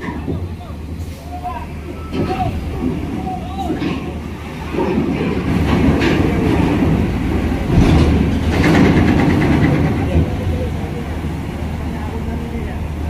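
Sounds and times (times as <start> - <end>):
bus engine running under load: 0.0 - 13.0
ramp plates rattling and clanking: 2.1 - 10.6.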